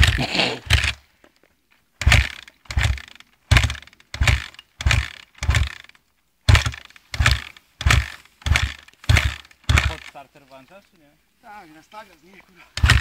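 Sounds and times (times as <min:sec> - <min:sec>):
dirt bike kick-start thuds: 0:00.0 - 0:01.1, 0:02.0 - 0:10.2, 0:12.7 - 0:13.0.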